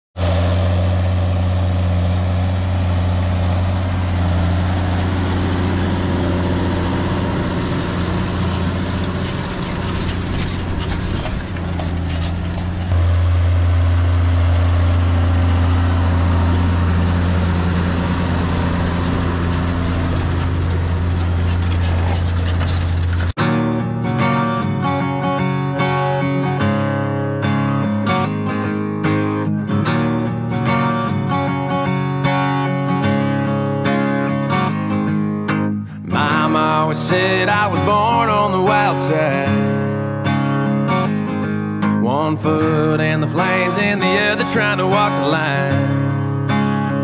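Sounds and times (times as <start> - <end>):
tractor diesel engine under load: 0.2 - 47.0.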